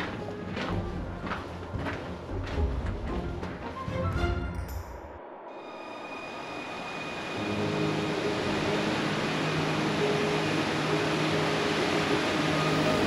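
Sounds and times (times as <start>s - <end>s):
waterfall rushing: 6.1s - 13.0s.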